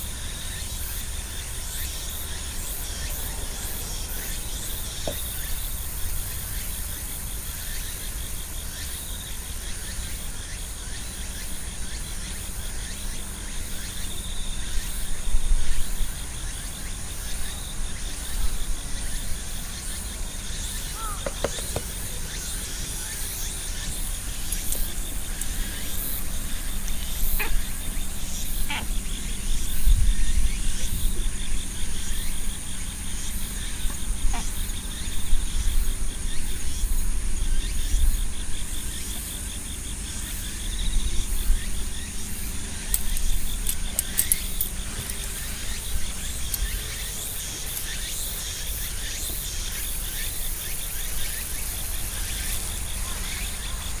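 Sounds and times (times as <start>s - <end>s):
insects chirring: 0.0s - 54.0s
thin high buzz: 13.0s - 54.0s.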